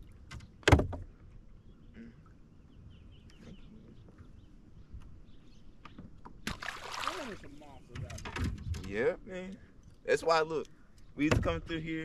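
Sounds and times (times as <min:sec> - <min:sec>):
faint bird chirps: 0:01.5 - 0:06.1.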